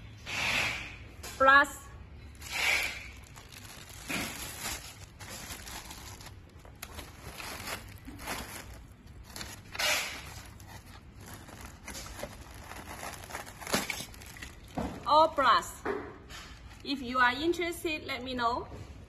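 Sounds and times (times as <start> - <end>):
plastic bag crinkling: 2.3 - 15.0
cardboard box rustling: 3.2 - 14.8.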